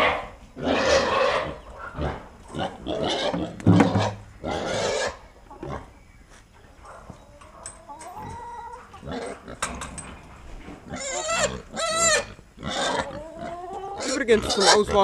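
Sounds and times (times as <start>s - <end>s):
pigs squealing: 0.0s - 5.9s, 8.1s - 9.6s, 10.8s - 15.0s.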